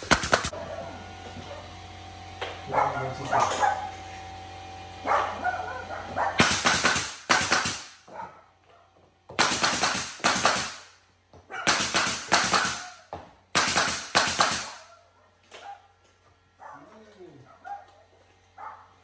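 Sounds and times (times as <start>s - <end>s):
nail gun firing: 0.0s - 0.5s, 6.4s - 8.0s, 9.4s - 11.0s, 11.6s - 14.9s.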